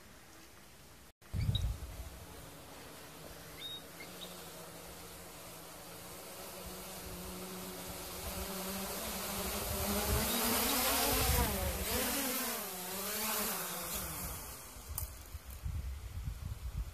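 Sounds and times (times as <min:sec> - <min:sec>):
quadcopter propellers buzzing: 0:01.4 - 0:16.7.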